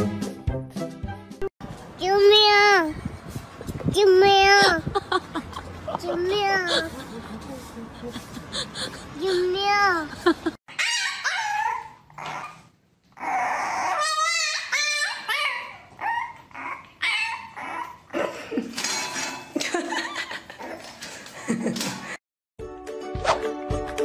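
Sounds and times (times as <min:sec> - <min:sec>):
puppy yipping and whining: 0:10.7 - 0:18.2.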